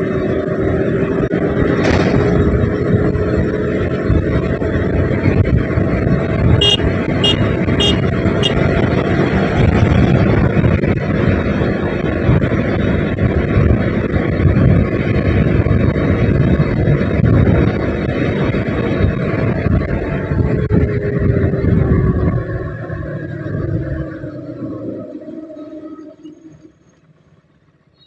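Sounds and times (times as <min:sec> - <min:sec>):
wind buffeting microphone: 0:00.0 - 0:25.1
motorcycle engine: 0:00.0 - 0:27.9.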